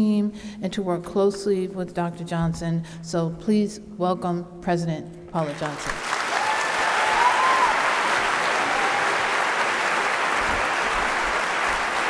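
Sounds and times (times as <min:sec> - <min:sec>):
audience applauding: 0:05.5 - 0:12.0.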